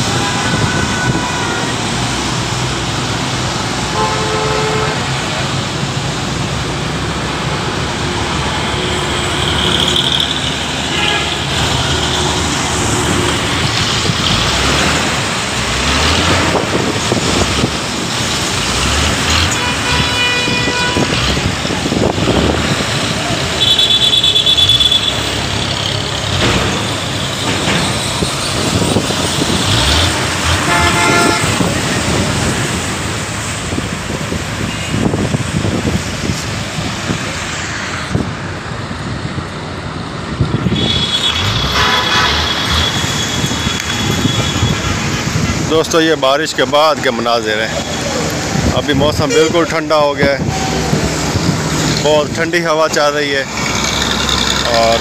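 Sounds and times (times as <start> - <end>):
vehicle horns: 0.0 - 2.4, 3.8 - 5.5, 8.8 - 13.4, 18.8 - 32.8, 40.6 - 46.0, 48.9 - 49.8
traffic on wet road: 0.0 - 55.0.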